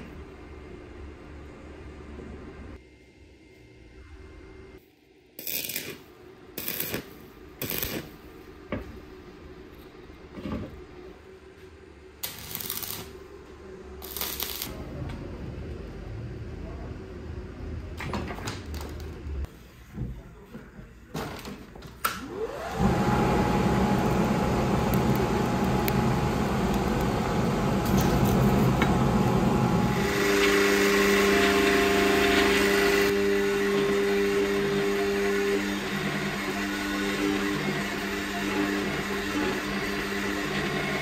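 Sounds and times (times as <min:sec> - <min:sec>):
electric motor whining and humming: 0:22.3 - 0:41.0
machine drone with hiss: 0:22.7 - 0:33.2.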